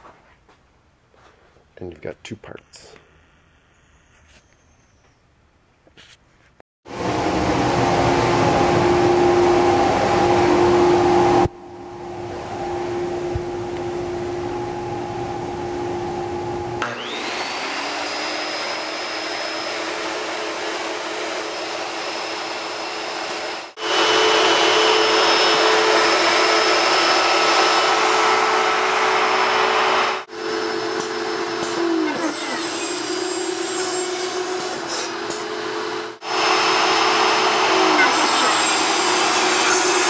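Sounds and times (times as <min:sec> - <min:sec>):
dust collection vacuum: 0:06.9 - 0:40.0
cutting machine motors whirring: 0:16.7 - 0:33.1.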